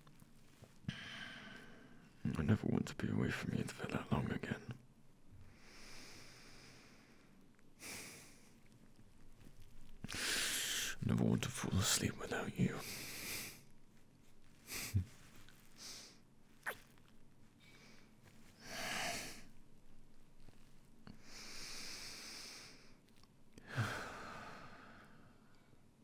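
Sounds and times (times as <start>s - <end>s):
man breathing and sighing: 14.6s - 16.2s, 17.6s - 19.5s, 23.6s - 25.5s.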